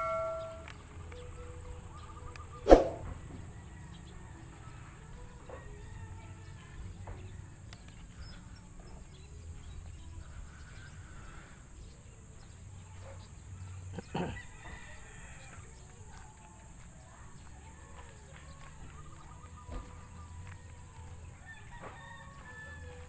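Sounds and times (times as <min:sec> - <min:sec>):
distant rooster crowing: 0:00.0 - 0:00.7, 0:02.7 - 0:07.3, 0:14.0 - 0:15.8, 0:18.5 - 0:23.0.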